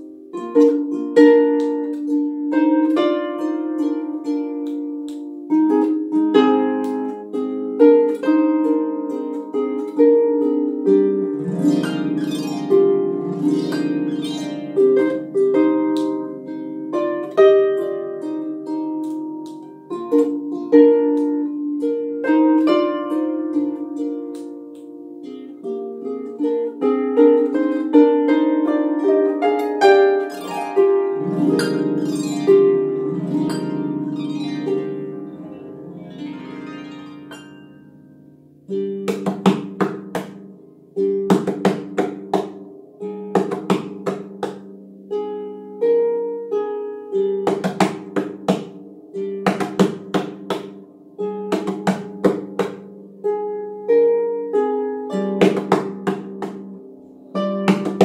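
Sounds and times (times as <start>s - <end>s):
harp plucked notes: 0.0s - 58.0s.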